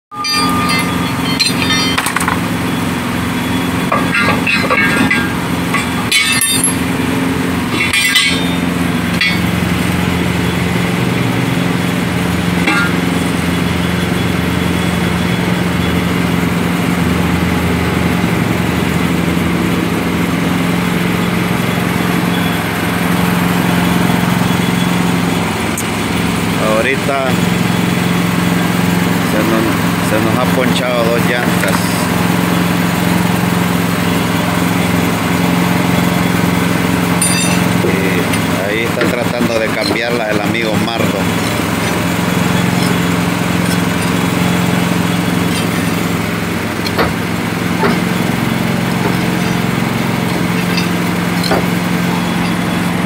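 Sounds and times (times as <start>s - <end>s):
metallic clinks of wheel tools: 0.1s - 2.4s, 3.9s - 7.0s, 7.7s - 9.6s, 37.2s - 38.5s, 49.0s - 53.0s
engine idling: 0.1s - 53.0s.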